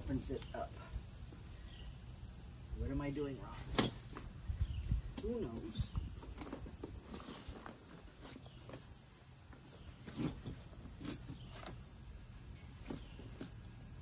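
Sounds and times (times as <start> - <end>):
camp cot frame clicks and knocks: 3.7 - 4.3.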